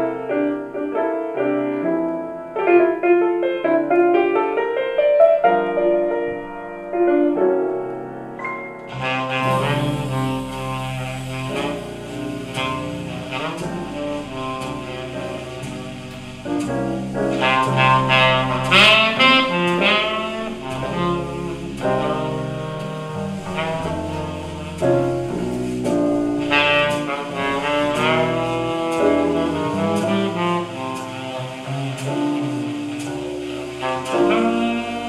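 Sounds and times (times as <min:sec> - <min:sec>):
saxophone melody: 0:08.8 - 0:16.7, 0:17.3 - 0:35.0
plucked double bass: 0:08.9 - 0:35.0.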